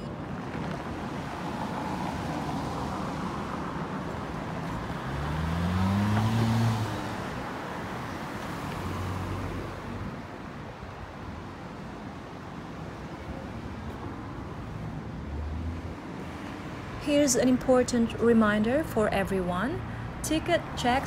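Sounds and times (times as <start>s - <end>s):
cars passing: 0.0s - 21.0s
car accelerating away: 4.8s - 7.4s.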